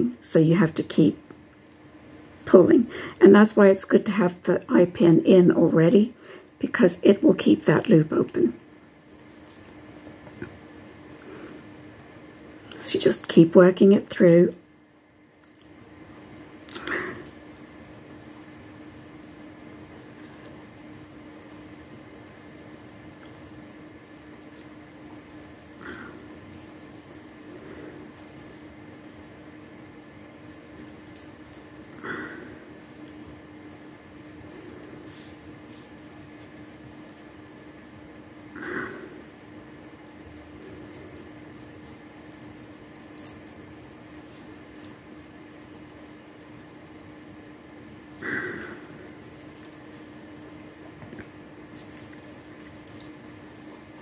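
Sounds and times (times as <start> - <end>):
steady low hum: 0.0 - 54.0
stone beads clicking and rustling: 20.0 - 29.2, 30.4 - 37.4, 39.7 - 47.3, 48.1 - 50.4, 51.6 - 53.6
stone beads clicking together: 39.8 - 47.1.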